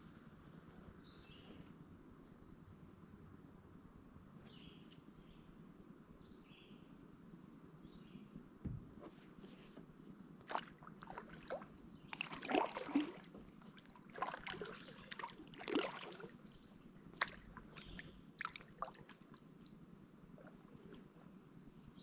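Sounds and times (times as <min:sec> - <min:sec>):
paddle splashing in water: 0:10.4 - 0:19.3.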